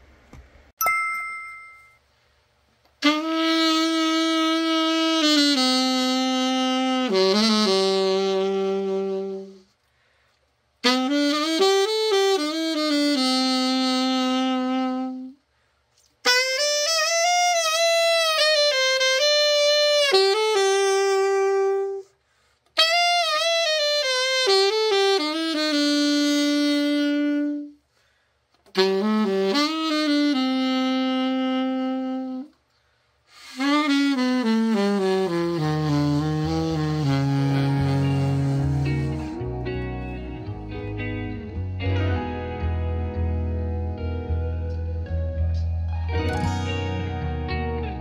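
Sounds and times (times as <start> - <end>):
alto saxophone phrases: 3.0 - 9.8, 10.8 - 15.4, 16.2 - 22.2, 22.8 - 27.8, 28.7 - 32.6, 33.3 - 42.0.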